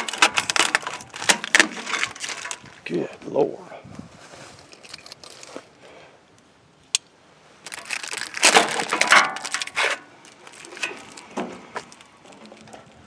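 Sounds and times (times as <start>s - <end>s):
plastic wrapping crinkling and tearing: 0.0s - 2.9s, 4.4s - 5.8s, 7.6s - 12.7s.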